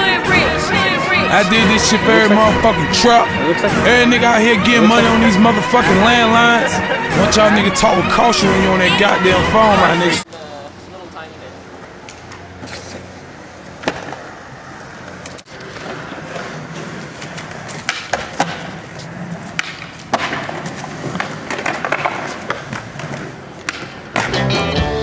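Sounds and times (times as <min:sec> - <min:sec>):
skateboard wheels rolling on concrete: 0:00.0 - 0:25.0
skateboard clacks: 0:15.0 - 0:24.8.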